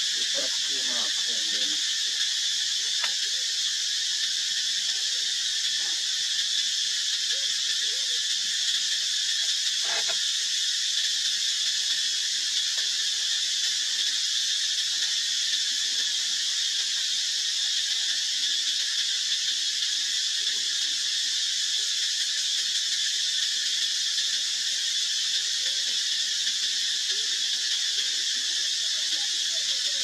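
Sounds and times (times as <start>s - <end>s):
insect chorus drone: 0.0s - 30.0s.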